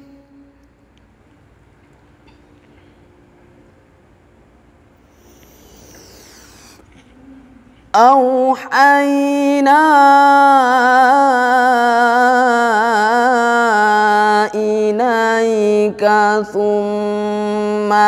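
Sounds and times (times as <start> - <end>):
male voice chanting: 7.4 - 18.0.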